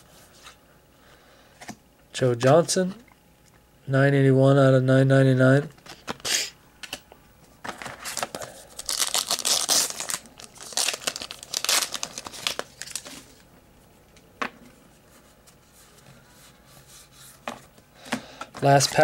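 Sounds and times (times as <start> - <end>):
wrapper crinkling: 7.7 - 13.4.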